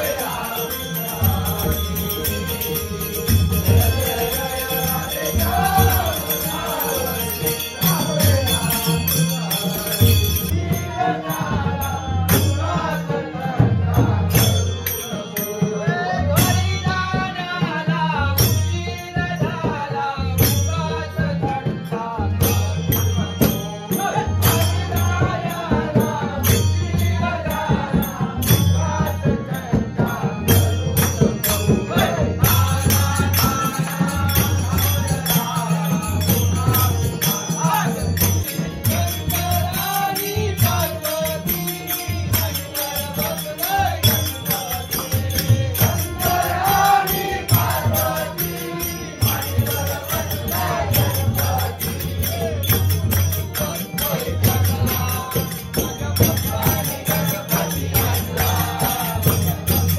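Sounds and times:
group singing devotional song: 0:00.0 - 0:59.9.

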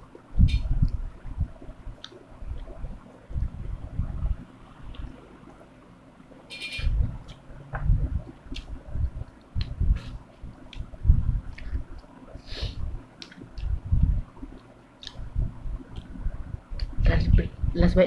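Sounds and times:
chewing and wet mouth noises: 0:07.2 - 0:10.9, 0:11.5 - 0:12.2, 0:13.2 - 0:13.8, 0:14.4 - 0:15.3.

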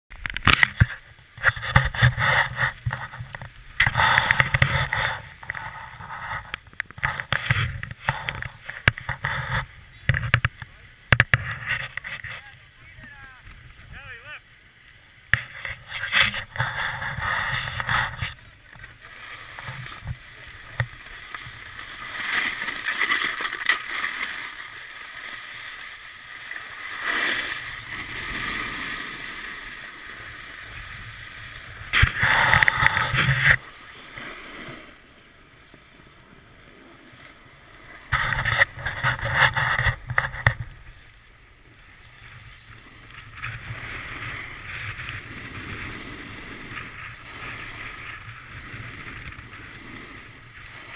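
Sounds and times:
snowboard scraping over snow: 0:00.6 - 0:14.1, 0:15.3 - 0:50.9.

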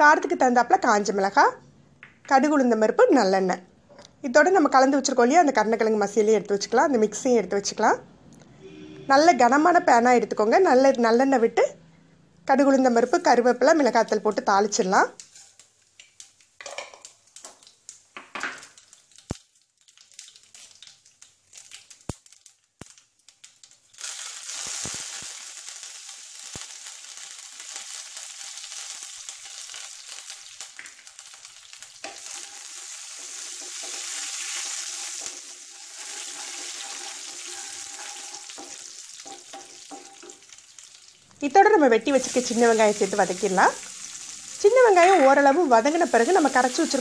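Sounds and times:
oil sizzling in a pan: 0:13.2 - 0:47.0
seeds popping in hot oil: 0:13.8 - 0:47.0.

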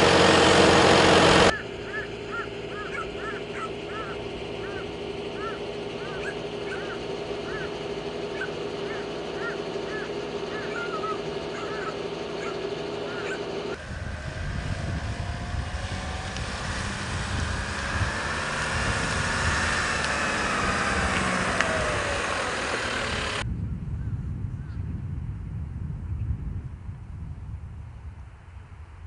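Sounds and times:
vehicle engine passing: 0:00.0 - 0:23.4
steady hum: 0:00.0 - 0:23.5
short high calls: 0:01.4 - 0:13.8.

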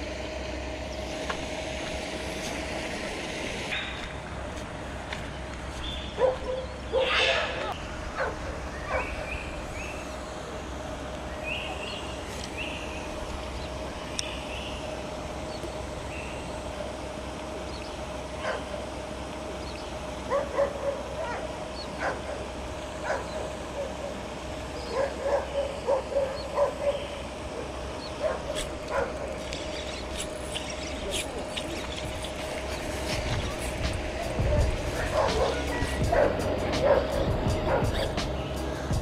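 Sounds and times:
steady hum: 0:00.0 - 0:39.0
dog barking: 0:06.2 - 0:09.3, 0:18.4 - 0:18.7, 0:20.3 - 0:21.4, 0:22.0 - 0:22.4, 0:23.0 - 0:24.2, 0:24.9 - 0:27.1, 0:28.2 - 0:29.3, 0:35.0 - 0:38.1.

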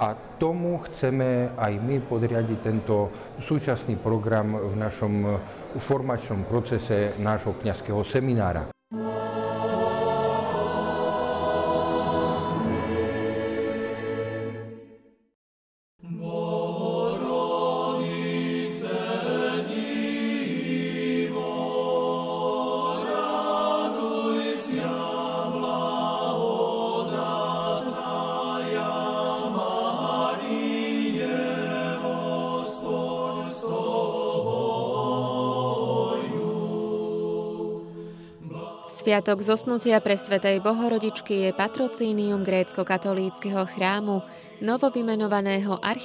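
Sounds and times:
group singing chant in harmony: 0:08.9 - 0:15.0, 0:16.0 - 0:46.0.

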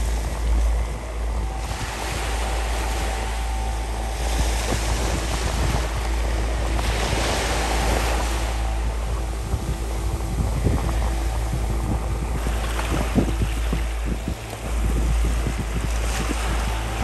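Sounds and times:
waves washing up beach: 0:00.0 - 0:17.0
wind on microphone: 0:00.0 - 0:17.0.

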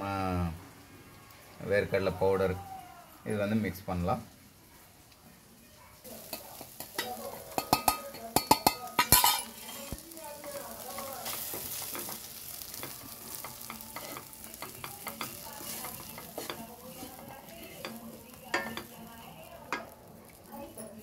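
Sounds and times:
food sizzling in a pan: 0:00.0 - 0:21.0
spoon scraping a pan: 0:06.1 - 0:21.0.

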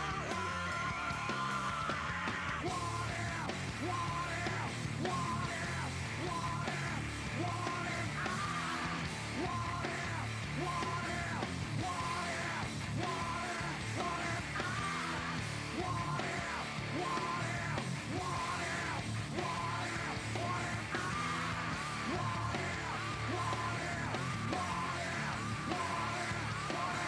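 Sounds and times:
rock music with shouted vocals: 0:00.0 - 0:27.0.

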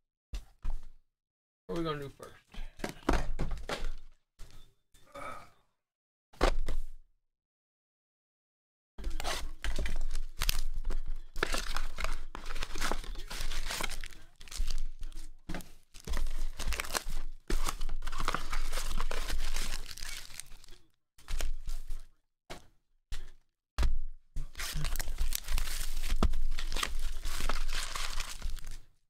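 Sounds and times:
foil packs crinkling: 0:09.5 - 0:15.3, 0:15.9 - 0:21.8, 0:24.5 - 0:28.9
cardboard boxes tearing: 0:11.4 - 0:14.9, 0:16.0 - 0:20.7, 0:24.5 - 0:28.8.

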